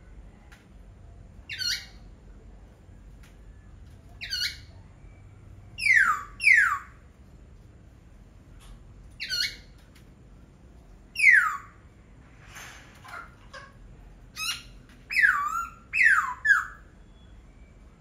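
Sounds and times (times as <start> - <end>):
bird calling: 5.8 - 7.0, 11.2 - 11.9, 13.0 - 17.4.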